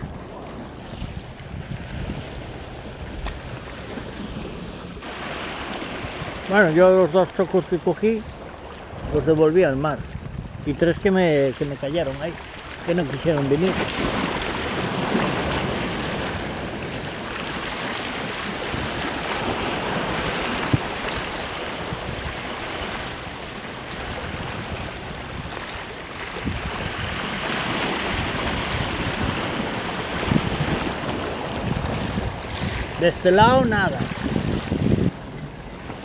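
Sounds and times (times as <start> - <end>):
sea waves splashing on rocks: 0.0 - 35.1
wind buffeting microphone: 0.0 - 36.0.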